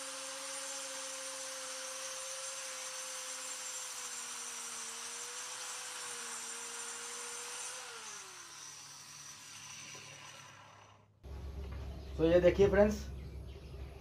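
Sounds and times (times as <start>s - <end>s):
circular saw cutting wood: 0.0s - 11.1s
saw motor winding down: 0.0s - 11.1s.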